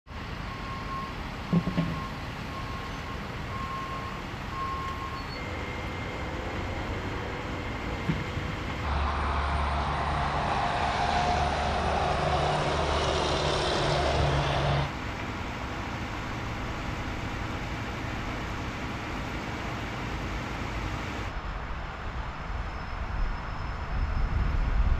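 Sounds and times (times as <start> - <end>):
vehicle backup alarm beeping: 0.4 - 6.3
vehicle engine running: 5.4 - 21.2.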